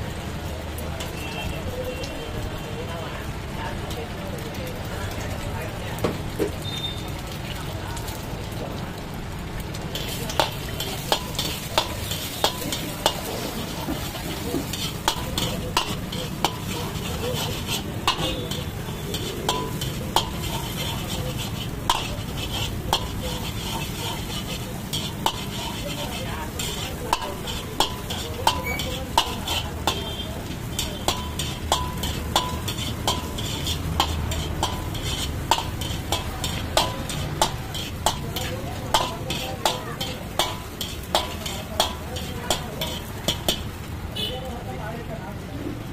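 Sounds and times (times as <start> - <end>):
eggs sizzling in oil: 0.0 - 45.9
ladle clanking on wok: 9.7 - 44.3.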